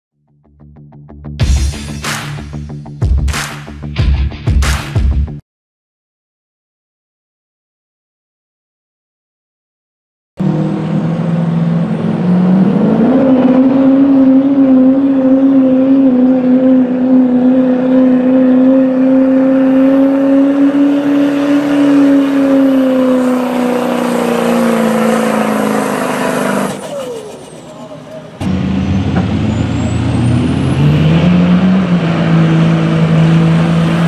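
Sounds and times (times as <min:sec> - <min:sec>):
diesel engine at full throttle: 0:10.4 - 0:34.0.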